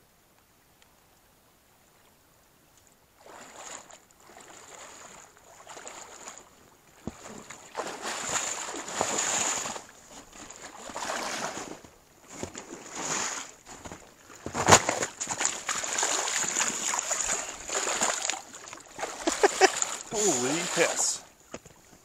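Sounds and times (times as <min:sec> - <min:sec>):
fish splashing in water: 0:07.1 - 0:11.6, 0:14.6 - 0:21.2.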